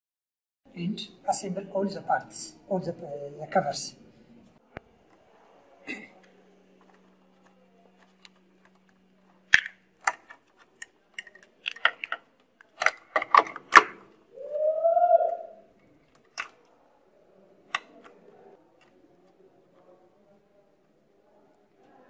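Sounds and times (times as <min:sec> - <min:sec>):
hard plastic clicks and rattles: 0:06.2 - 0:14.1, 0:16.1 - 0:16.7.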